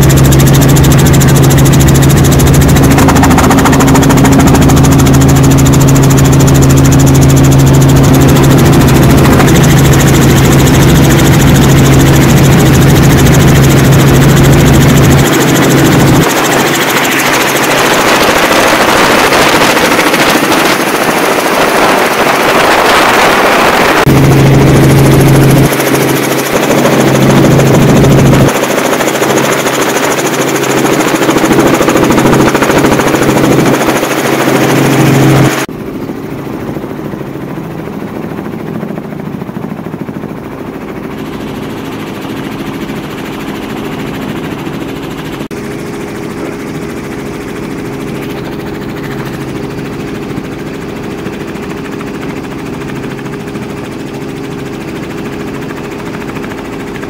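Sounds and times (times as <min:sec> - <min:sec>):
engine drone with deep hum: 0:00.0 - 0:20.2.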